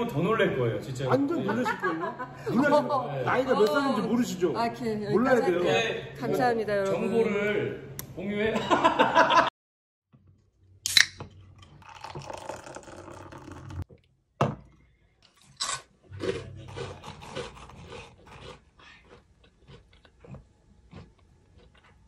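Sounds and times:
beer pouring into a glass: 11.6s - 13.9s.

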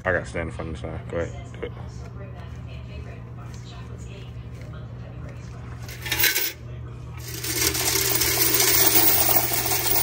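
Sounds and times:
coins clinking and rattling: 5.8s - 6.6s, 7.2s - 10.0s.

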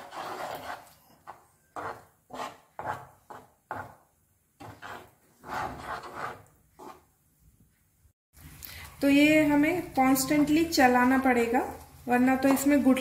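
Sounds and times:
wooden spatula scraping a pan: 0.0s - 7.2s.

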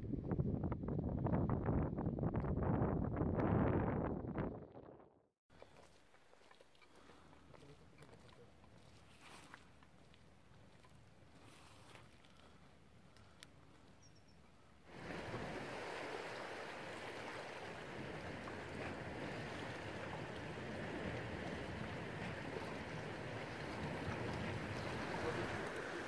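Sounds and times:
sea waves washing against rocks: 14.9s - 26.0s.

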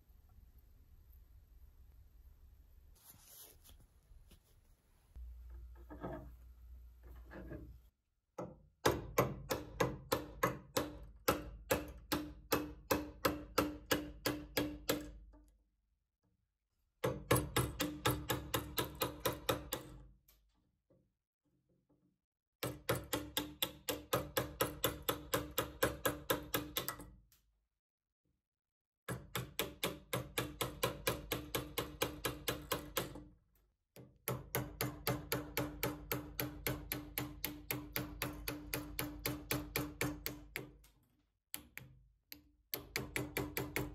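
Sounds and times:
hammer tapping steel chisel: 41.6s - 43.9s.

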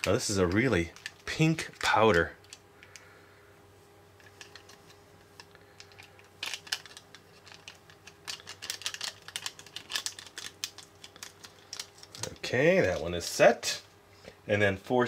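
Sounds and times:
foil sachet crinkling: 0.0s - 2.6s, 5.7s - 13.3s.

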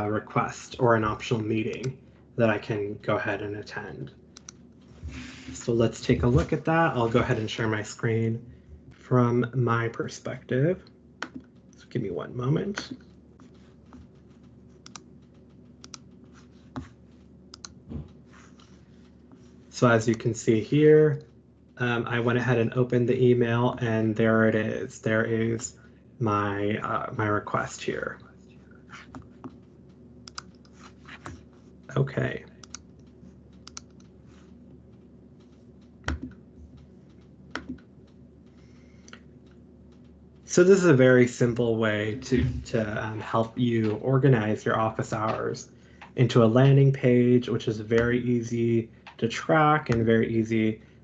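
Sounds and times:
faint steady hum: 0.0s - 51.0s
keyboard and mouse clicks: 10.8s - 11.9s, 12.7s - 19.5s, 28.9s - 31.5s, 32.6s - 40.2s
soft keyboard keystrokes: 32.6s - 38.6s.

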